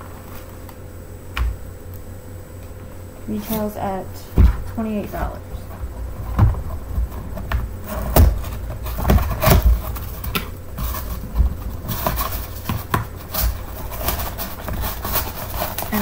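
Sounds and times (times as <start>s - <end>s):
cardboard rustling: 3.3s - 16.0s
cardboard flaps knocking and scraping: 3.5s - 16.0s
low thumps: 3.6s - 13.2s.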